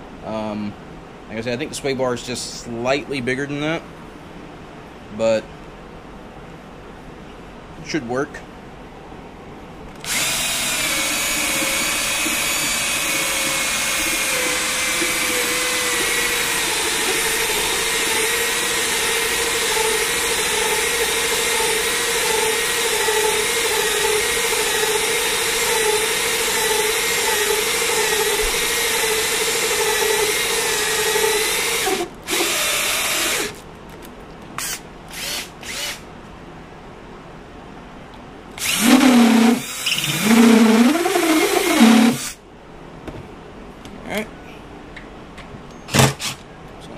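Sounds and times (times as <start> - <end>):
cordless drill whining: 10.0 - 33.6, 34.6 - 36.0, 38.6 - 42.4.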